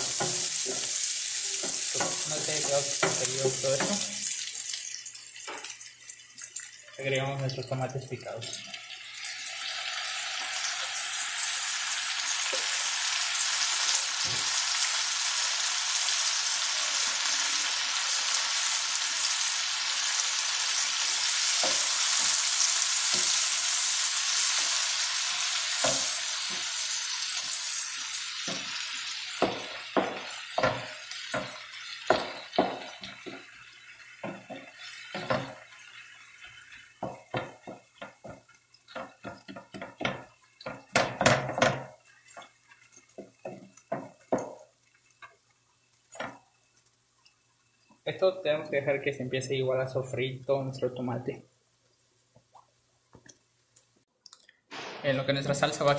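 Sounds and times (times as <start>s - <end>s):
vegetables sizzling in a frying pan: 0.0s - 48.1s
wooden spoon knocking against pan: 1.6s - 3.2s, 29.4s - 33.4s, 34.2s - 35.6s, 37.0s - 42.0s, 43.2s - 44.7s.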